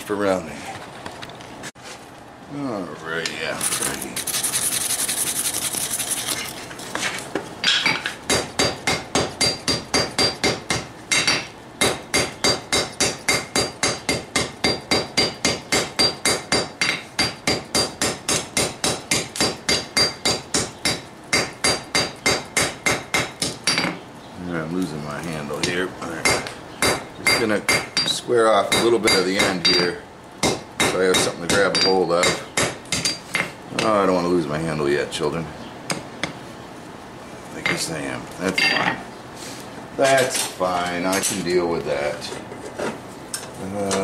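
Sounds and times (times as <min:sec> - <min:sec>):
hammer striking steel on anvil: 0:07.7 - 0:24.0.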